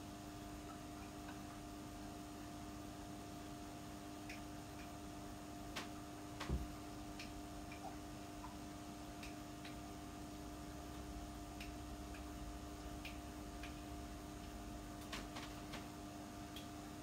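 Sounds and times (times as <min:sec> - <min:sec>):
faint electrical hum: 0:00.0 - 0:17.0
faint irregular ticks: 0:04.2 - 0:05.0, 0:07.1 - 0:16.9.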